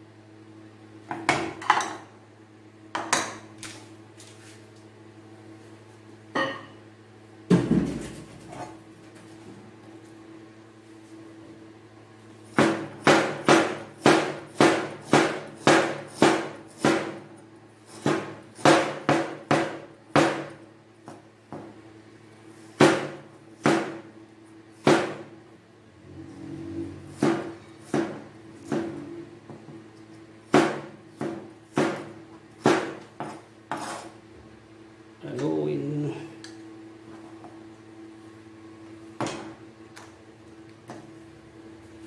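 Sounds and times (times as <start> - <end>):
knife chopping on cutting board: 12.6 - 17.3, 17.9 - 21.2, 22.8 - 24.1, 24.8 - 25.2, 27.2 - 29.0, 30.5 - 34.1
low hum: 25.5 - 30.2.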